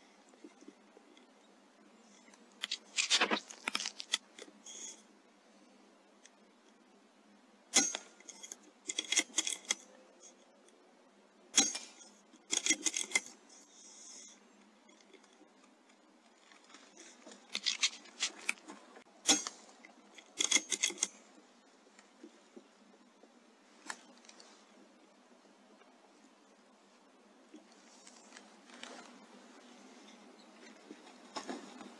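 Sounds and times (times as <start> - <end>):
metallic clicks of rifle action: 7.8 - 9.9, 19.3 - 21.2.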